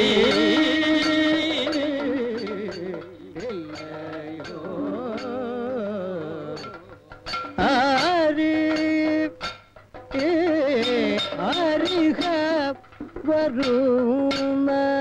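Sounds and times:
person singing ornamented notes: 0.0s - 7.0s.

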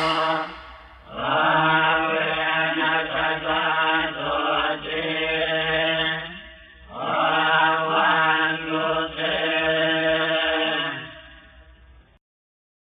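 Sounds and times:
monotone chanting: 0.0s - 6.3s.

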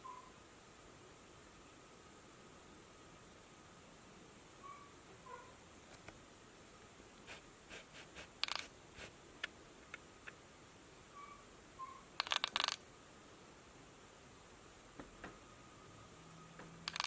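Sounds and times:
faint bird chirps from laptop: 0.0s - 0.4s, 4.6s - 5.5s, 11.1s - 12.1s
cat tapping laptop keys: 8.4s - 8.7s.

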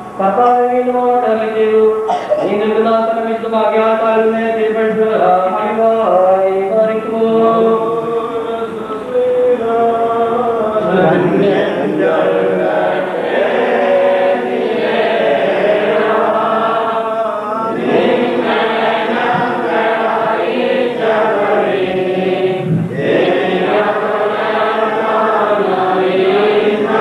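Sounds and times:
choir chanting: 7.0s - 27.0s.

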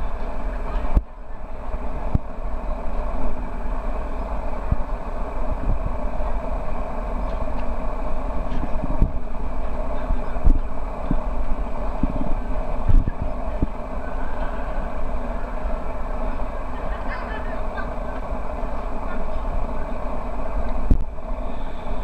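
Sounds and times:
outdoor street rumble: 0.0s - 22.0s.

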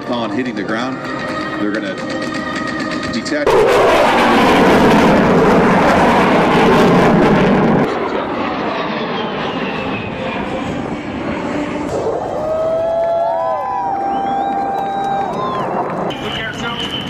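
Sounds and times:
military jet roaring overhead: 0.0s - 17.0s
jet whine falling in pitch: 3.4s - 17.0s.

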